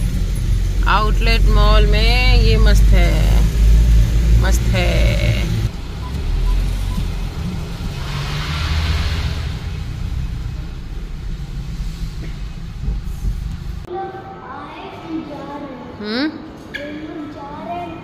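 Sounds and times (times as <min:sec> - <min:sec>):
car engine and tyres rumbling: 0:00.0 - 0:13.9.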